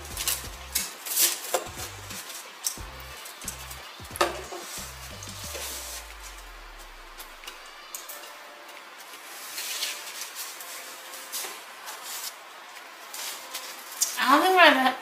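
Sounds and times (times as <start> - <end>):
pastry wafer crackling: 0.0 - 8.1.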